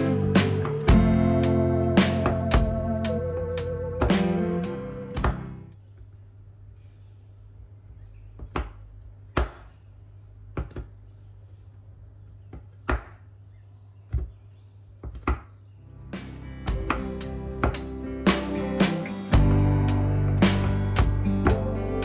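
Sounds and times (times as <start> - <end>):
knife chopping on wooden board: 8.4 - 9.7, 12.8 - 13.2.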